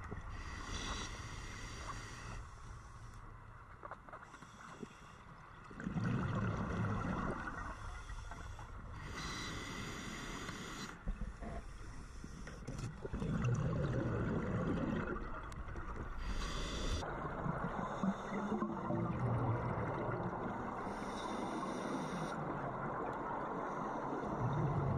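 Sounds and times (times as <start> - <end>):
bubbling exhalation underwater: 5.8 - 7.6, 13.0 - 15.4
hiss of inhalation: 7.8 - 11.0, 16.2 - 17.0.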